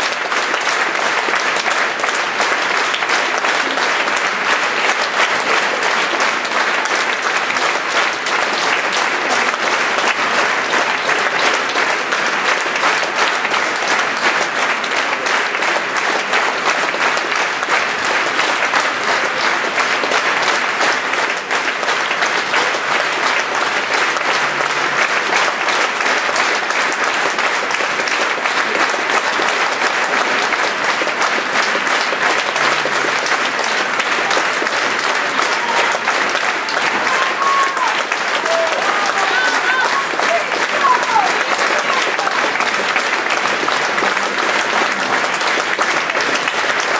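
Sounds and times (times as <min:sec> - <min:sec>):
audience applauding: 0:00.0 - 0:46.9.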